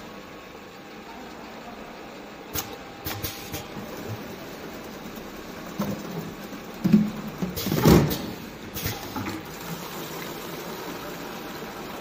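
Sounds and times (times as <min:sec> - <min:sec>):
steady machine hum: 0:00.0 - 0:12.0
plastic cans knocking and clattering: 0:05.7 - 0:08.2.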